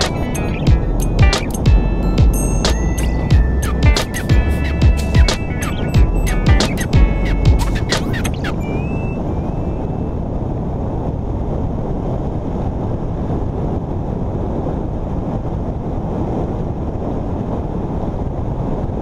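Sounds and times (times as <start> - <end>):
road noise: 0.0 - 8.5
wind rushing on microphone: 0.0 - 19.0.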